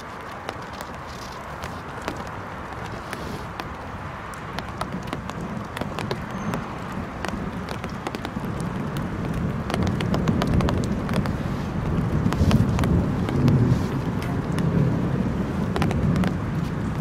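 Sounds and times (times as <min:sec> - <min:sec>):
steady hiss: 0:00.0 - 0:09.6.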